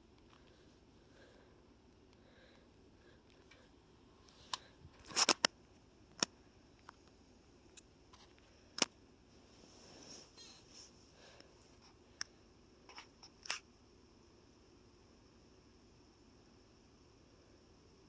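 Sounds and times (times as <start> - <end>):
faint room hiss: 0.0 - 18.0.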